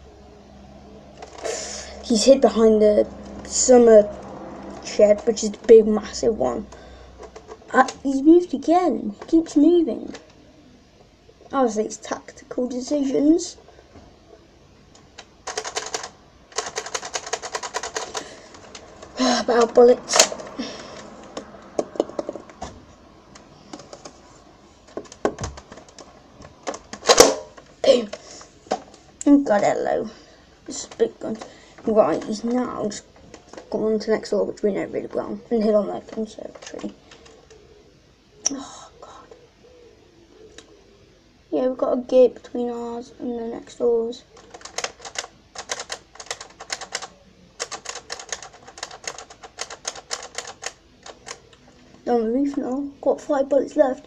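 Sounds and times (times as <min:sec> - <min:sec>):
plastic toy gun clicks and rattles: 0:15.2 - 0:20.5, 0:24.9 - 0:27.6, 0:44.4 - 0:51.5.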